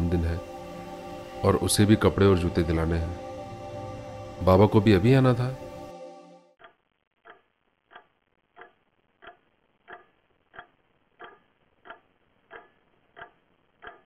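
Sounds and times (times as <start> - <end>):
clock ticking: 6.6 - 14.0.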